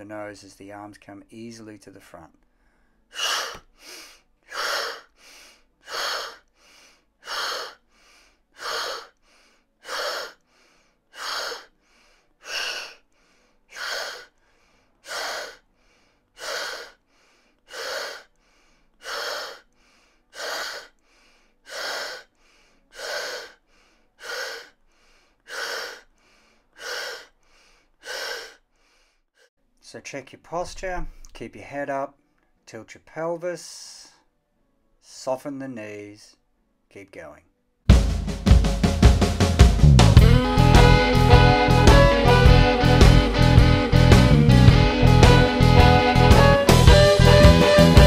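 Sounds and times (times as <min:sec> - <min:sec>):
faint breaths: 0:02.4 - 0:29.3
man exhaling forcefully: 0:03.1 - 0:13.0, 0:13.7 - 0:14.4, 0:15.0 - 0:19.7, 0:20.4 - 0:21.0, 0:21.7 - 0:22.3, 0:22.9 - 0:23.6, 0:24.2 - 0:28.6.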